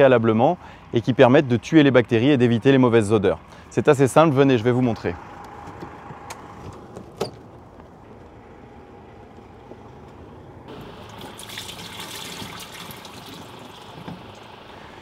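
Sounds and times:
liquid pouring into drain: 10.7s - 14.8s.

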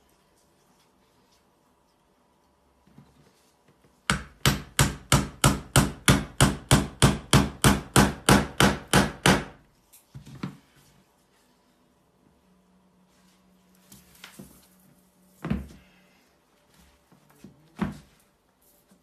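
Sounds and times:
hammer striking wooden plank: 4.1s - 9.6s.

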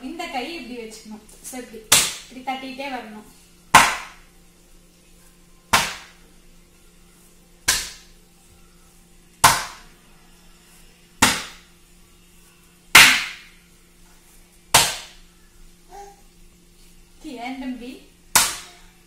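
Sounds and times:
dough slapped onto countertop: 1.9s - 2.3s, 3.7s - 4.2s, 5.7s - 6.2s, 7.6s - 8.1s, 9.4s - 9.9s, 11.2s - 11.7s, 14.7s - 15.2s, 18.3s - 18.8s.

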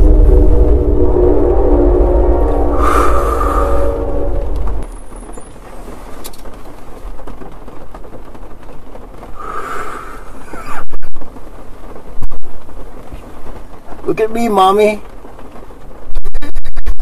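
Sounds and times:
loud distorted burst: 0.0s - 5.2s
car road noise: 0.0s - 14.1s.

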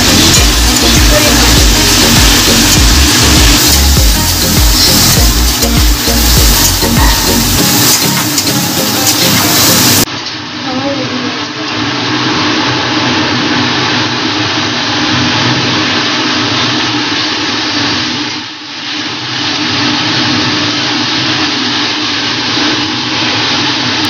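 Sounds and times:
spatula stirring: 0.0s - 10.1s
food sizzling in oil: 0.0s - 24.0s.

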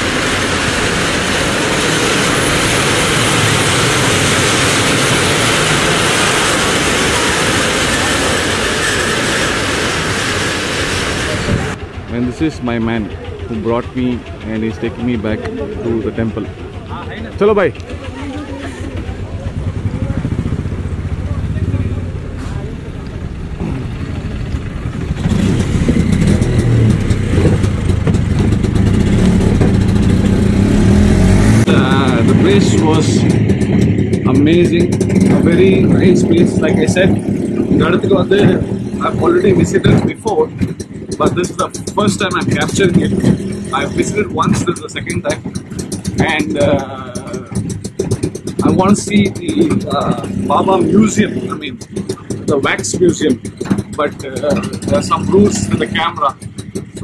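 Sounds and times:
auto-rickshaw engine revving: 0.0s - 57.0s
ride train rolling on steel track: 0.0s - 57.0s.

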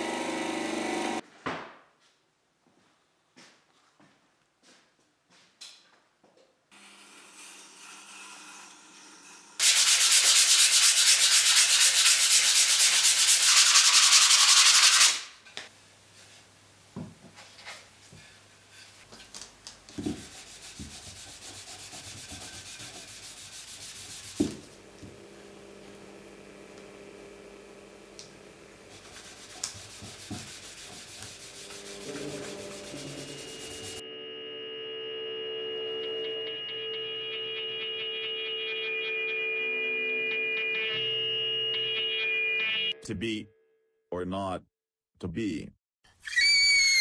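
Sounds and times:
sandpaper sanding wood: 9.6s - 15.2s, 19.9s - 24.7s, 28.9s - 34.0s.

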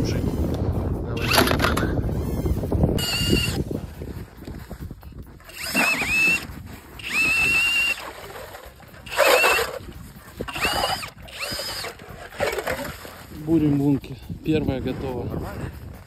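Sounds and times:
cordless drill motor whine: 1.2s - 3.6s, 5.4s - 13.2s
auger grinding in ice: 5.4s - 16.0s.

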